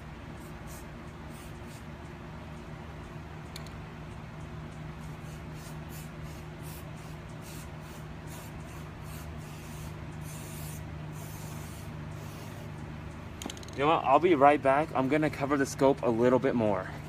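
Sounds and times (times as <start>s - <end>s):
spray paint can hissing: 0.4s - 1.9s, 5.0s - 12.7s.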